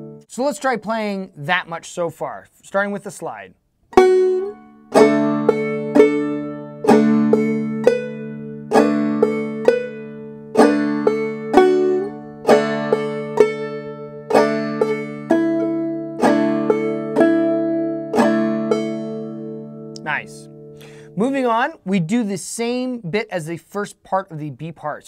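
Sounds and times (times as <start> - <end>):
banjo playing: 0.0 - 0.3, 3.9 - 21.7.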